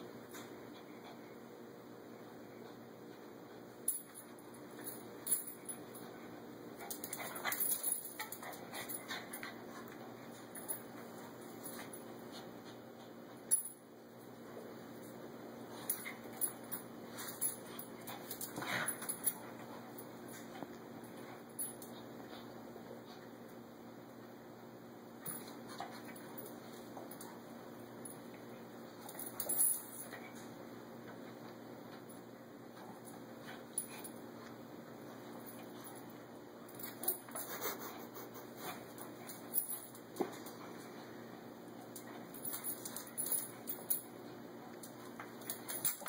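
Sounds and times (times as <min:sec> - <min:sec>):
paws and claws on tiles: 0:06.8 - 0:13.4, 0:36.8 - 0:41.1.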